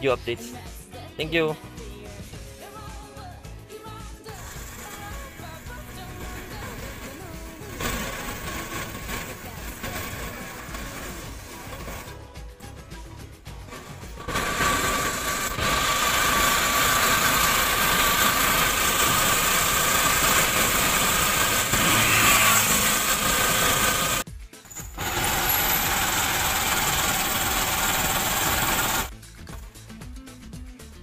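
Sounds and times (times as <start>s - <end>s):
motorcycle engine and road noise: 13.7s - 29.1s.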